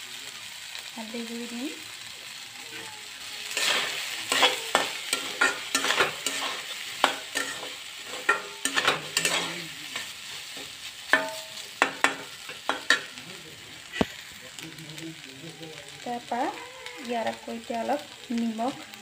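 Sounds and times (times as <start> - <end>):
frying sizzle: 0.0 - 19.0
metal spatula scraping pan: 2.7 - 13.2.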